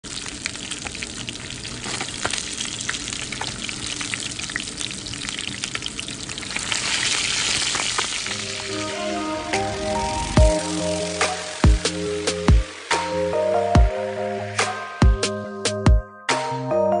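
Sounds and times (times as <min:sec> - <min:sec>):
fish frying in hot oil: 0:00.0 - 0:15.2
music: 0:08.3 - 0:17.0.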